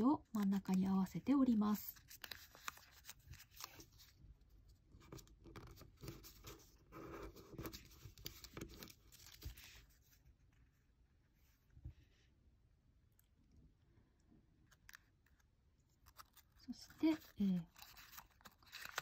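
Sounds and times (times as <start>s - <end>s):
paper rustling and crinkling: 1.8s - 4.2s, 5.0s - 10.3s, 14.8s - 19.0s.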